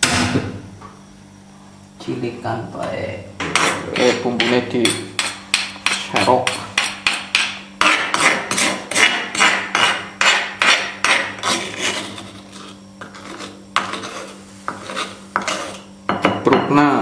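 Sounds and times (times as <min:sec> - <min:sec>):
spoon scraping stone mortar: 0:03.5 - 0:15.9.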